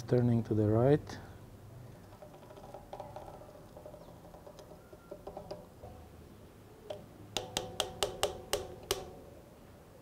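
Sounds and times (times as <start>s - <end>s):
spanner clicking on bicycle hub: 6.9s - 9.1s.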